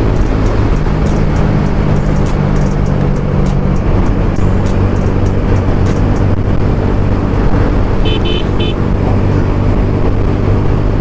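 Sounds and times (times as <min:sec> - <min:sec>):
motorcycle engine running: 0:00.0 - 0:11.0
wind and road noise: 0:00.0 - 0:11.0
short high beeps: 0:08.1 - 0:08.8.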